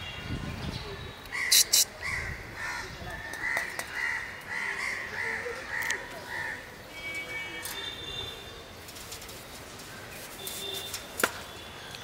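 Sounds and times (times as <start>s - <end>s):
crows cawing: 1.3s - 6.7s.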